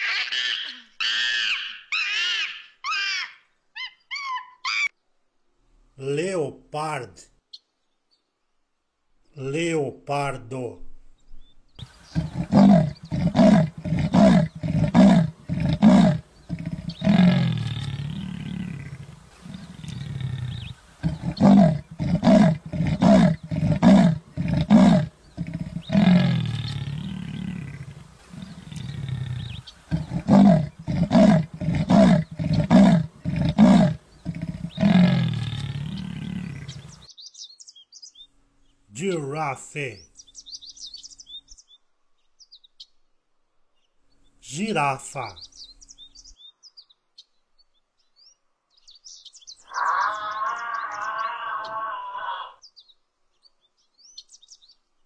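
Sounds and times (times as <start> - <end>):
leopard grunting call: 11.8 - 37.1, 49.6 - 52.6.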